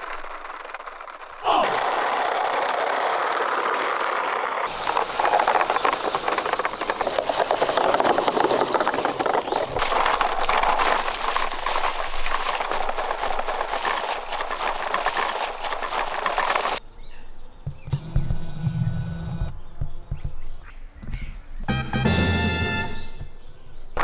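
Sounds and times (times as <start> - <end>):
toy wheels rolling over leaves: 0.0 - 16.8.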